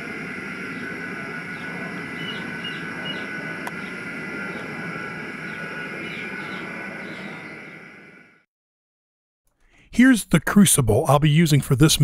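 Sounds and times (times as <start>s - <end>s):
gas burner roaring: 0.0s - 8.5s.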